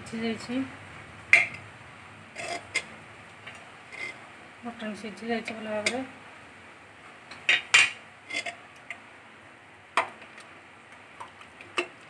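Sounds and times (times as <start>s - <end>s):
spoon scraping metal pot: 2.3s - 2.9s, 3.9s - 4.2s, 7.5s - 8.6s.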